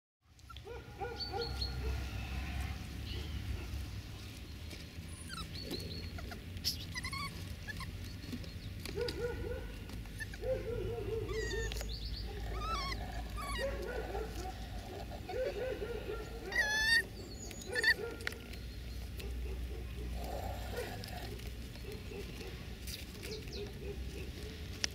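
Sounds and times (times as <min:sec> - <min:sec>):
high-pitched animal yelps and chirps: 0:05.2 - 0:08.0, 0:10.2 - 0:15.6, 0:16.3 - 0:18.2.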